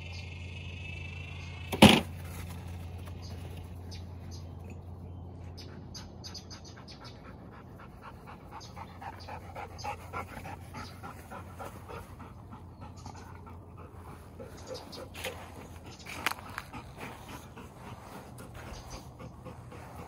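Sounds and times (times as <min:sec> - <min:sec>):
dog panting: 0:06.8 - 0:20.0.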